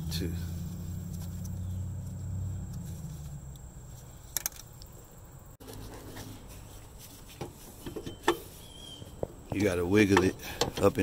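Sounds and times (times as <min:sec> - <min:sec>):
low hum: 0:00.0 - 0:07.0
rustling handling noise: 0:00.5 - 0:11.0.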